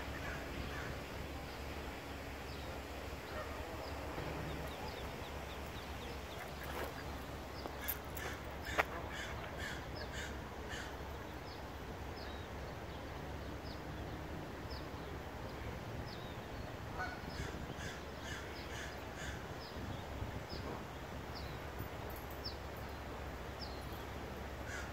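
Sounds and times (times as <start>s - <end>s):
ducklings peeping: 2.6s - 10.9s.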